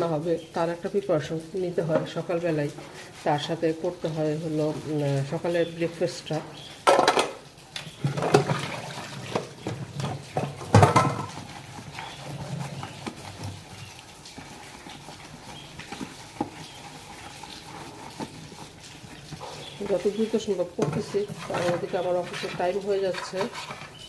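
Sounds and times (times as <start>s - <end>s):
sponge scrubbing plastic bowl: 0.0s - 6.7s, 7.3s - 24.0s
dishes clanking in sink: 6.8s - 11.6s.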